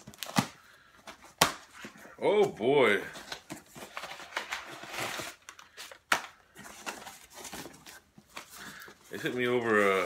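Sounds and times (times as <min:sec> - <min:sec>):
cardboard box rustling: 0:06.6 - 0:10.0.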